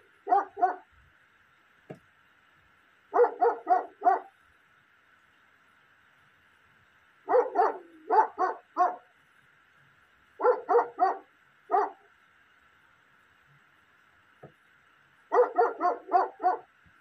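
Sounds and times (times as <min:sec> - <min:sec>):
dog barking: 0:00.2 - 0:00.9, 0:03.1 - 0:04.3, 0:07.3 - 0:09.1, 0:10.4 - 0:12.1, 0:15.3 - 0:16.7.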